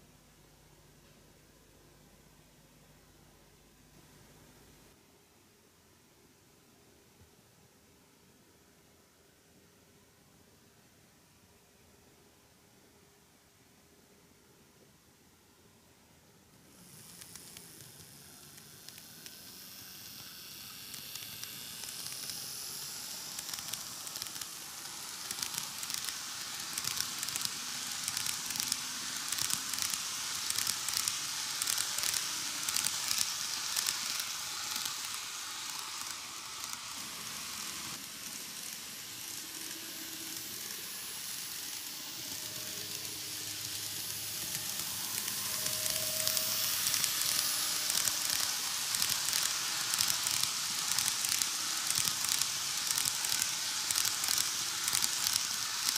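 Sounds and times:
model train wheels rolling on rails: 0:16.6 - 0:55.9.

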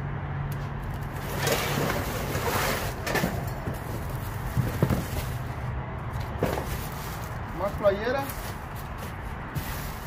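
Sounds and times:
cardboard boxes rustling and scraping: 0:01.2 - 0:05.6, 0:06.2 - 0:07.5, 0:08.2 - 0:10.0.

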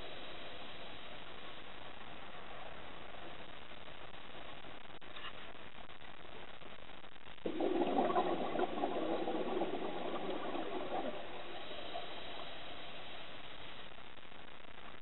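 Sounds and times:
faint hiss: 0:00.0 - 0:15.0
exhaust bubbles rushing underwater: 0:07.4 - 0:13.0.

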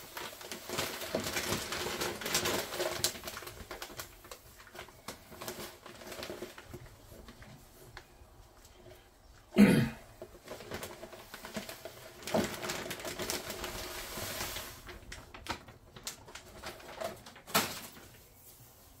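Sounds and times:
plastic bag crinkling: 0:00.0 - 0:09.1, 0:10.0 - 0:19.0
grain pouring hiss: 0:12.9 - 0:15.1.

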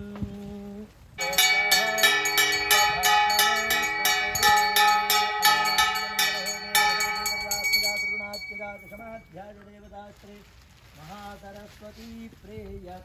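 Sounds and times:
wavering pitched music: 0:01.2 - 0:09.0
temple bells ringing rapidly: 0:01.2 - 0:09.2
held steady tone: 0:01.2 - 0:09.3.

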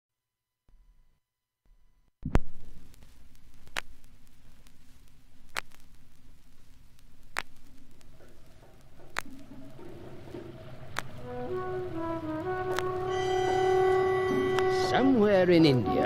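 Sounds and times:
record scratch clicks: 0:02.2 - 0:13.6
vinyl surface hiss and hum: 0:02.2 - 0:16.0
faint music: 0:02.9 - 0:16.0.

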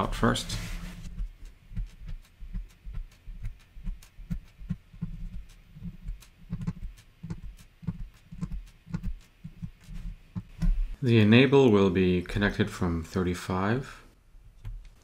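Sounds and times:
low thumps: 0:01.0 - 0:11.0.

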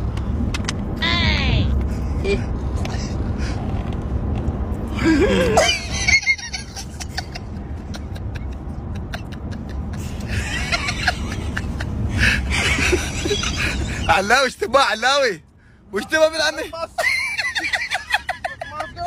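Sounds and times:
low rumble inside moving car: 0:00.0 - 0:19.0
man laughing: 0:05.0 - 0:14.2, 0:16.6 - 0:19.0.

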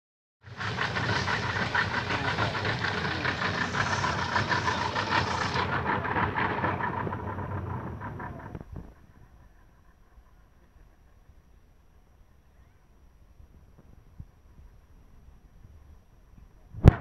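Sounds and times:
outboard motor running: 0:00.4 - 0:09.6.

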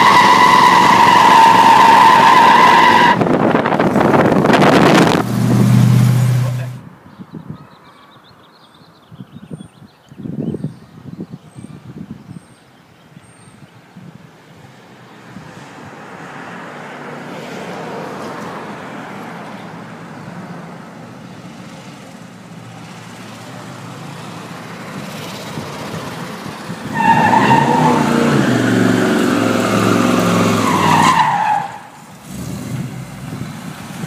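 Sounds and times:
tyres squealing: 0:00.0 - 0:03.2, 0:26.8 - 0:32.0.

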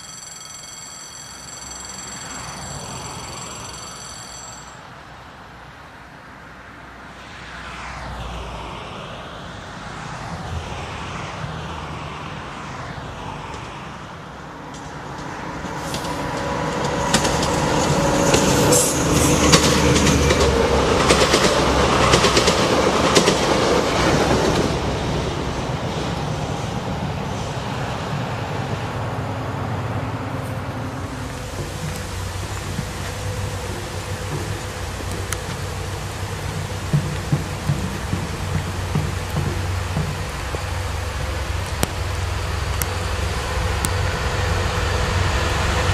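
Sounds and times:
diesel locomotive engine rumble: 0:13.5 - 0:45.9
train wheels clicking over rail joints: 0:14.7 - 0:24.8, 0:30.4 - 0:44.4.

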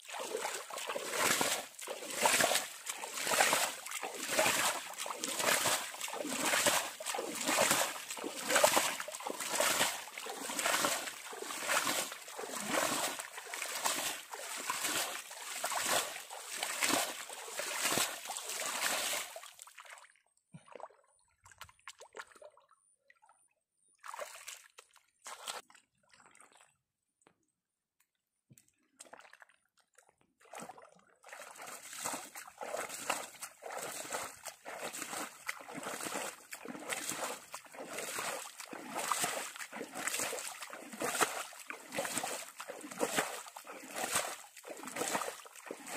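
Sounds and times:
water splashing by hand: 0:00.0 - 0:22.7, 0:24.0 - 0:26.8, 0:28.8 - 0:45.9
hands squelching in mud: 0:00.1 - 0:19.8, 0:31.3 - 0:45.9.

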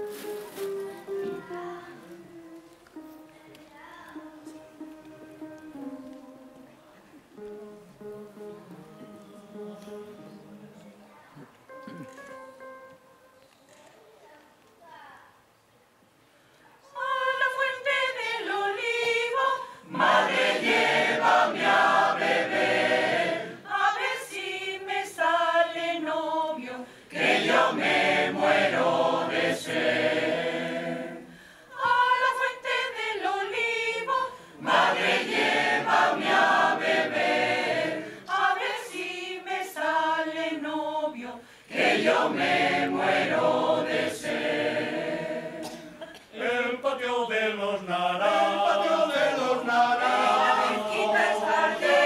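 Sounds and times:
mixed choir singing a cappella: 0:16.8 - 0:52.0.

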